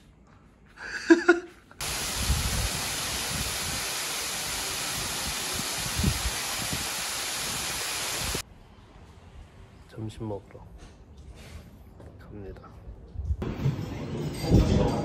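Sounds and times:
waterfall pouring over rocks: 1.8s - 8.4s.

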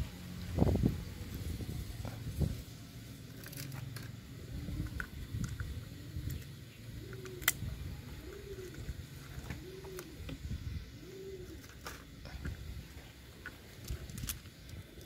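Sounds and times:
dove cooing: 3.4s - 15.0s.

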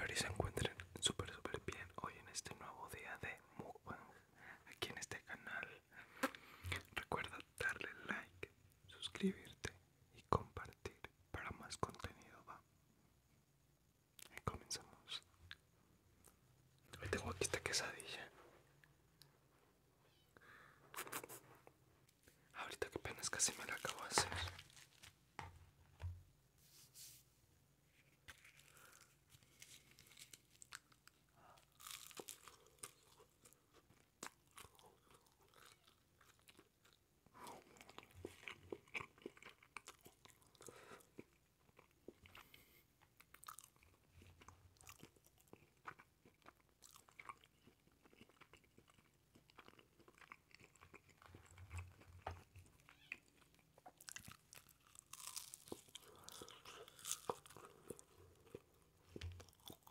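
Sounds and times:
chewing and biting food: 28.3s - 37.0s, 37.6s - 59.9s.

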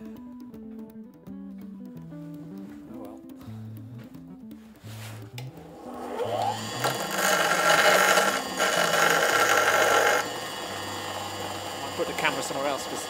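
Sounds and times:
background music: 0.0s - 13.0s
bench grinder grinding metal: 5.6s - 13.0s.

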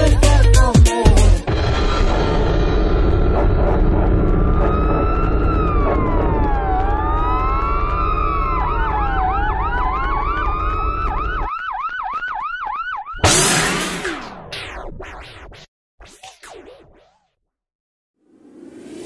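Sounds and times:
dance music beat: 0.0s - 1.5s
loud burst of noise: 1.5s - 5.8s
siren wail: 2.1s - 13.4s.

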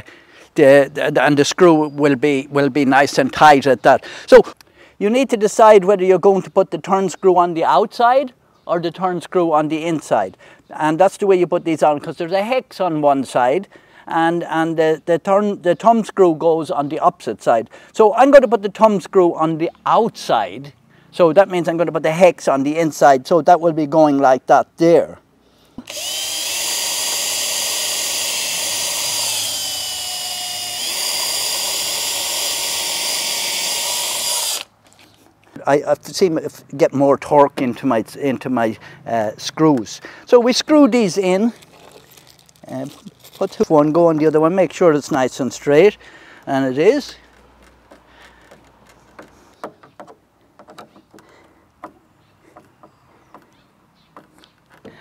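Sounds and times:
electric drill whining: 25.8s - 34.7s.

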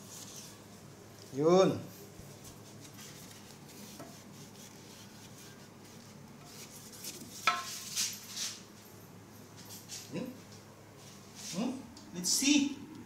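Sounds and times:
hand rubbing ceramic bowl: 2.0s - 8.7s.

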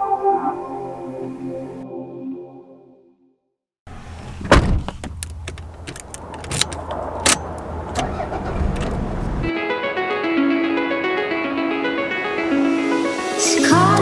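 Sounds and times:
music: 0.0s - 3.5s, 9.5s - 14.0s
loud thump: 4.4s - 5.2s
car keys jangling: 4.8s - 9.1s
key clicking in ignition: 4.9s - 8.2s, 8.8s - 9.0s.

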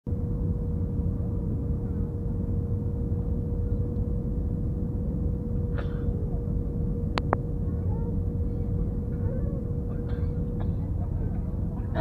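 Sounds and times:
constant whine: 0.1s - 12.0s
jet engines and airflow rumble: 0.1s - 12.0s.

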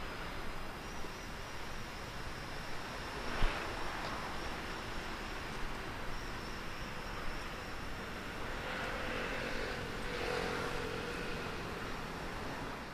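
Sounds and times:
outdoor background noise: 0.0s - 12.9s
motor vehicle passing: 8.5s - 11.9s.

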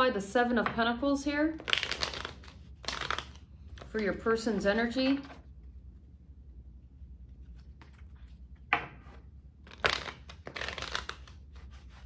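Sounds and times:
cards being shuffled: 1.6s - 4.0s, 7.3s - 12.0s.

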